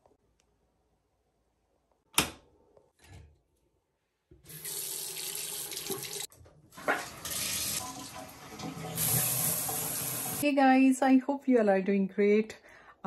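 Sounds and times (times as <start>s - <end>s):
tap running water into sink: 4.4s - 10.4s.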